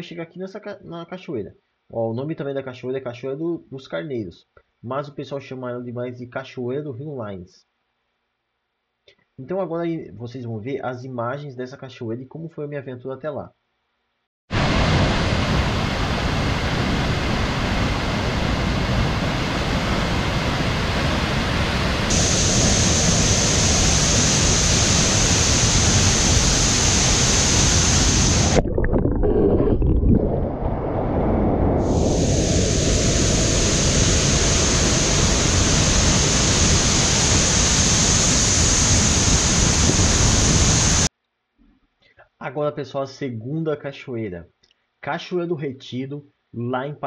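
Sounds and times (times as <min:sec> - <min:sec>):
waterfall rushing: 0:14.6 - 0:28.6, 0:31.8 - 0:41.1.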